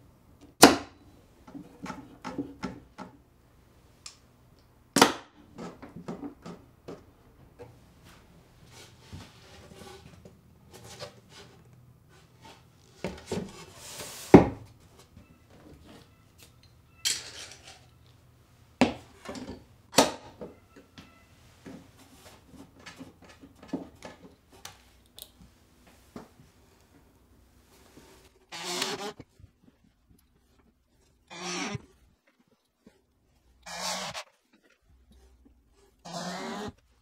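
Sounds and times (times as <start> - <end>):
board scraping across bench: 8.7 - 14.5, 33.6 - 34.2, 36.1 - 36.8
metal clamps clicking and clanking: 16.6 - 18.0.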